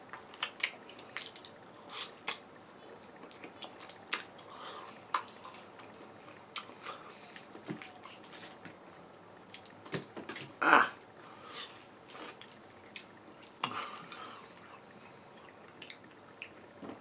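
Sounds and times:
wet chewing and lip smacks: 0.1s - 4.5s, 5.1s - 8.5s, 9.4s - 10.1s, 12.1s - 16.6s.

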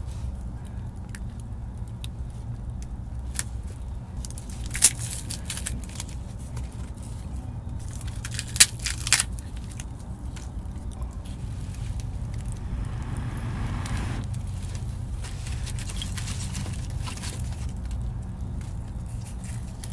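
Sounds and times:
steady low rumble: 9.4s - 16.0s.

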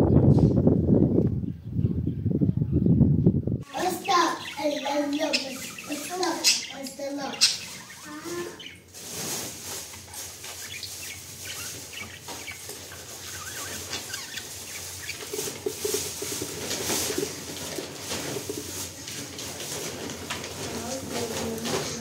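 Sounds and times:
budgerigars chirping: 3.6s - 8.9s, 9.6s - 17.6s.

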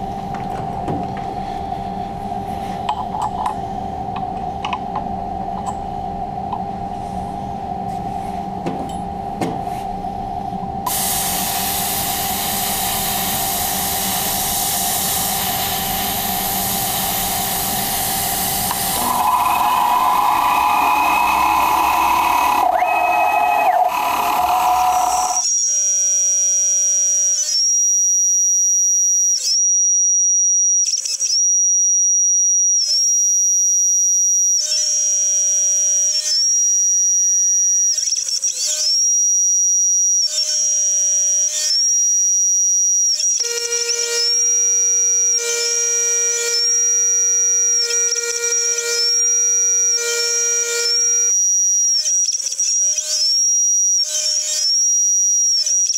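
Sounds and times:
mill high-pitched whine: 0.0s - 38.1s, 38.8s - 55.9s
hissy cutting noise: 10.9s - 25.4s.

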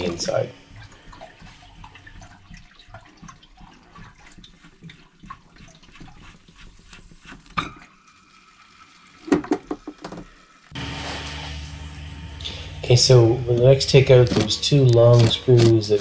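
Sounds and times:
water dripping and trickling: 0.0s - 9.3s.

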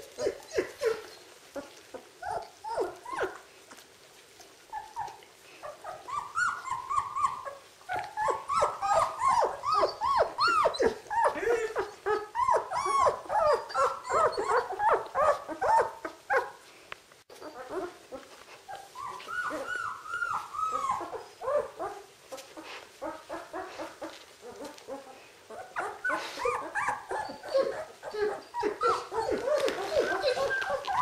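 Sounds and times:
puppies whimpering and squealing: 0.0s - 3.8s, 4.6s - 16.6s, 17.3s - 31.0s.

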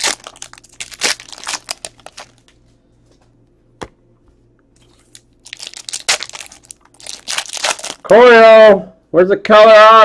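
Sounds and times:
foil wrapper crinkling: 0.0s - 2.6s, 4.8s - 8.1s.

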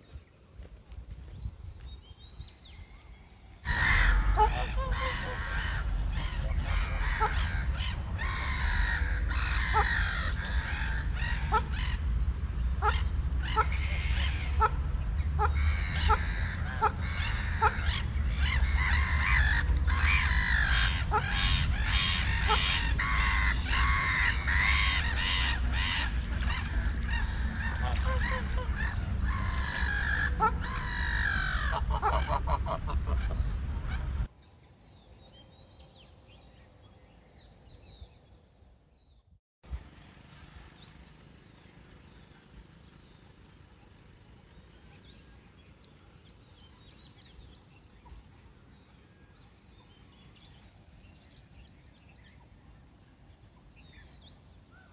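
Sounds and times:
flock of birds honking and cawing: 3.7s - 34.3s
steady low rumble: 3.7s - 34.3s.

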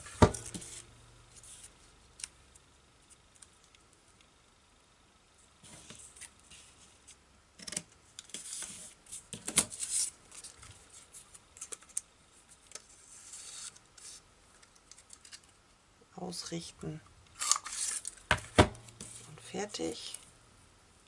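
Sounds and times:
paper strips rustling and scraping: 0.3s - 2.3s, 8.2s - 14.2s, 17.4s - 18.3s.

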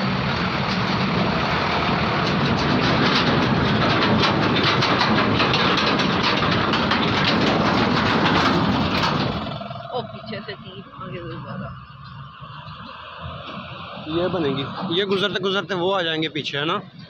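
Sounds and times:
tyres crackling over gravel: 0.0s - 11.8s
truck engine running: 0.0s - 17.0s.

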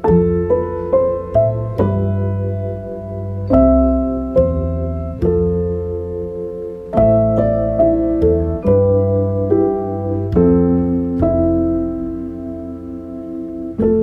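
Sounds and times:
slow piano chords: 0.0s - 14.0s.

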